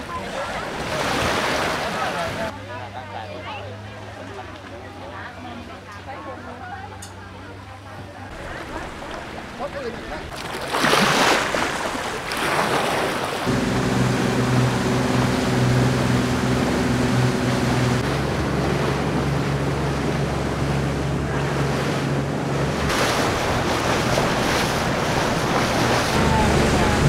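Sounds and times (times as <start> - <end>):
speedboat engine humming: 0.0 - 27.0
water rushing along hull: 0.0 - 27.0
small waves washing over rocks: 8.3 - 13.5, 22.8 - 27.0.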